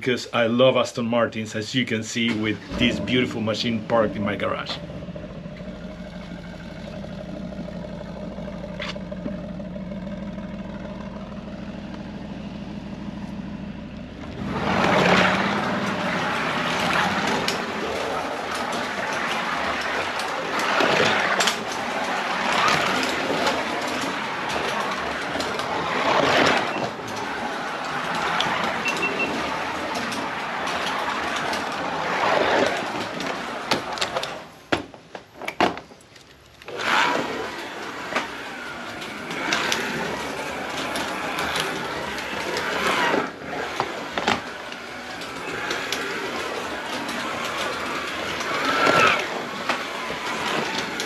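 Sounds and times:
slot car motors whirring: 1.6s - 35.4s, 36.0s - 51.0s
clicks: 13.9s - 51.0s.

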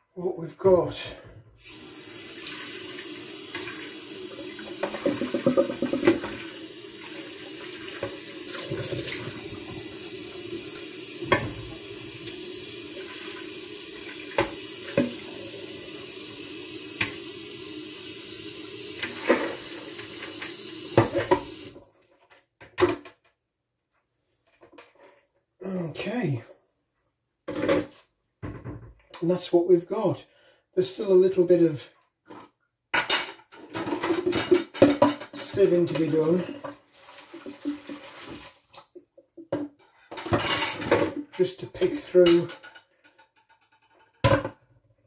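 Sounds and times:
tap water splashing into bowl: 3.5s - 9.8s, 10.7s - 11.8s, 14.0s - 15.3s, 17.0s - 17.2s, 19.0s - 21.8s.

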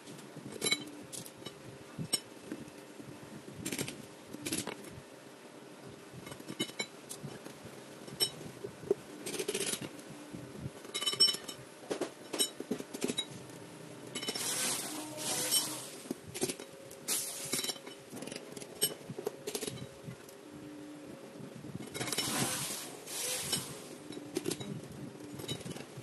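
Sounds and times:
faint steady hum: 0.0s - 26.0s
metal parts clinking: 14.2s - 19.9s
short bursts of hiss: 17.1s - 17.6s, 22.3s - 24.0s.

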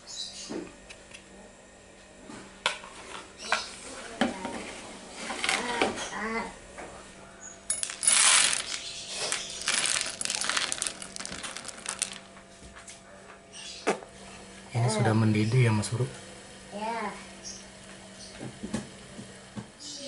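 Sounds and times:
clinks: 7.7s - 12.2s
pellets rattling into plastic bowl: 7.7s - 12.3s.

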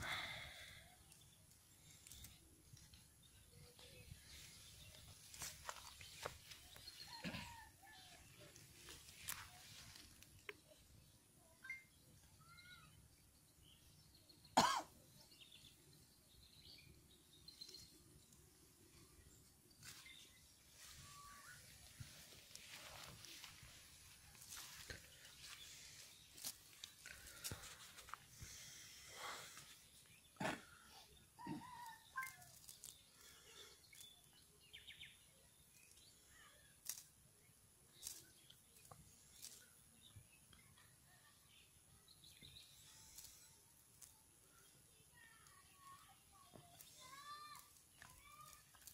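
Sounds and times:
faint bird chirps: 9.2s - 14.6s, 15.2s - 27.5s, 28.4s - 37.1s
loud cough: 14.6s - 14.9s.

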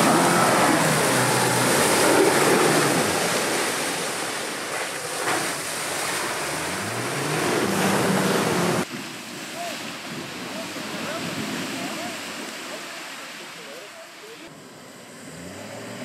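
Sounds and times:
car engine revving: 0.0s - 4.3s, 6.2s - 8.9s, 14.9s - 16.0s
tyres splashing mud and water: 0.0s - 14.4s.

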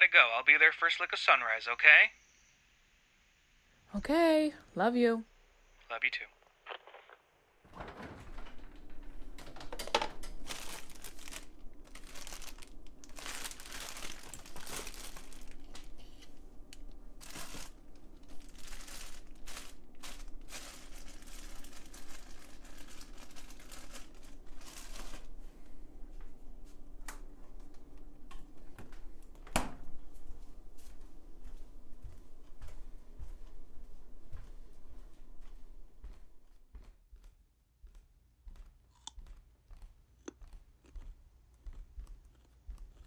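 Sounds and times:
faint low hum: 0.0s - 3.0s, 3.8s - 43.0s
food packaging crinkling: 9.8s - 25.4s.

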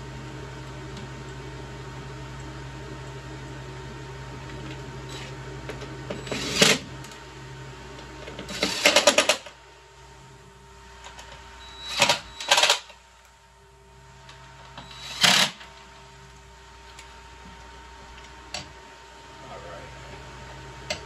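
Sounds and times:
steady low hum: 0.0s - 21.0s
cordless power driver running: 4.4s - 9.5s, 11.0s - 13.0s, 14.2s - 15.9s.

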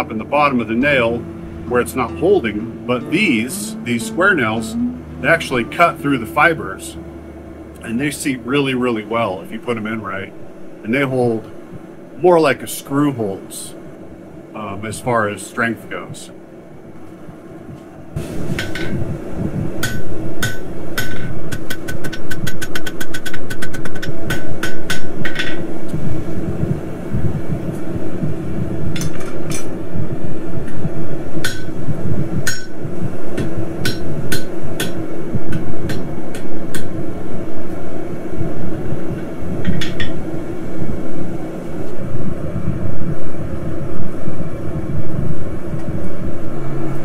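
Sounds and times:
steady low roar: 0.0s - 10.8s.

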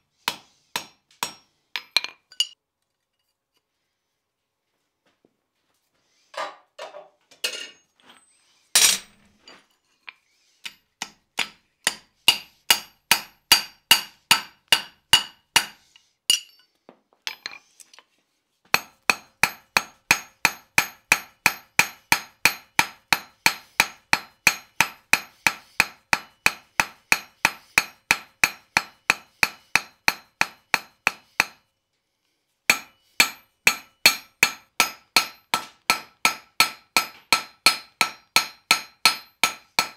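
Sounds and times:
hammer striking iron on anvil: 0.3s - 2.6s, 11.0s - 16.6s, 18.8s - 31.6s, 32.7s - 39.9s.

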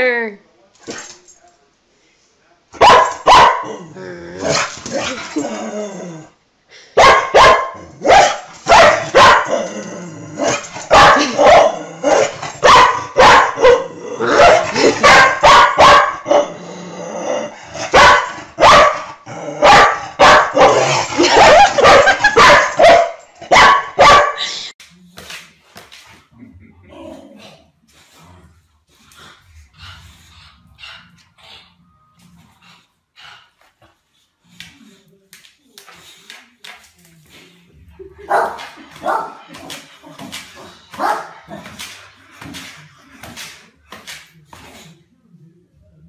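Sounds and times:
dog barking: 2.8s - 3.7s, 7.0s - 9.6s, 10.8s - 16.4s, 17.9s - 24.4s, 38.2s - 39.4s, 41.0s - 41.7s.

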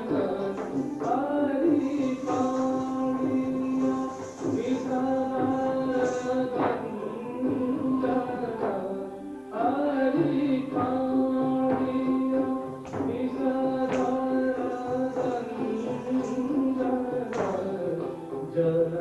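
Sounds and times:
sharp drum strokes: 0.0s - 8.8s.

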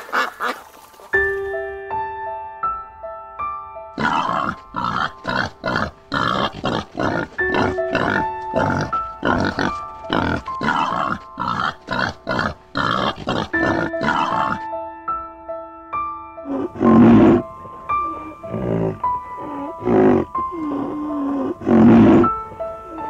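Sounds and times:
background music: 0.0s - 23.0s
pig grunting: 4.0s - 14.7s, 16.5s - 23.0s.

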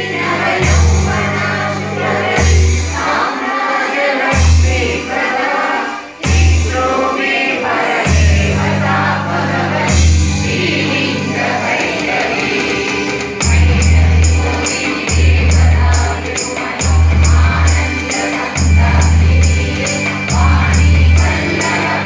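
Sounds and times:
group singing devotional song: 0.0s - 22.0s
percussive beat: 4.2s - 5.5s, 6.2s - 9.1s, 9.9s - 22.0s
deep pulsing bass: 13.4s - 14.6s.

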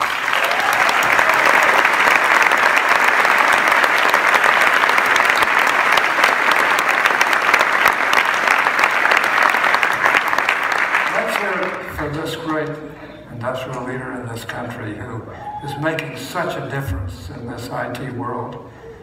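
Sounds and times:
audience applauding: 0.0s - 12.9s.

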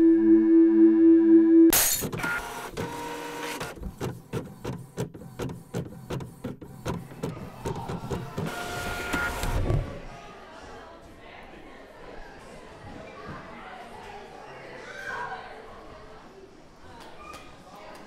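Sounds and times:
printer running with clicks: 1.7s - 9.9s.

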